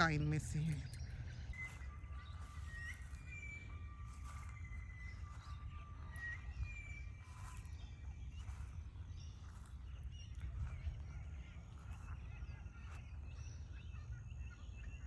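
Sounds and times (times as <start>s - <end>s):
birds whistling calls: 0.0s - 15.0s
wind rumble on microphone: 0.0s - 15.0s.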